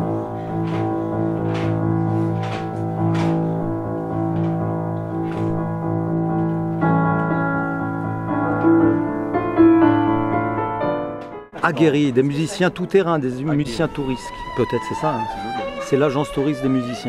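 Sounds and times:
piano playing slow chords: 0:00.0 - 0:11.6.

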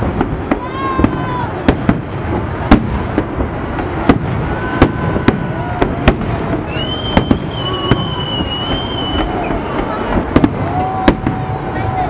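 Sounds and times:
fireworks bursting with sharp bangs: 0:00.0 - 0:12.0
rumble of fireworks reports: 0:00.0 - 0:12.0
steady high whistle: 0:06.6 - 0:09.7.

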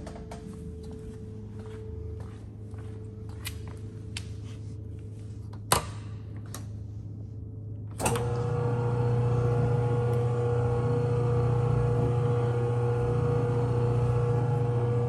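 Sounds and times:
low background hum: 0:00.0 - 0:15.0
blender motor humming: 0:08.2 - 0:15.0.

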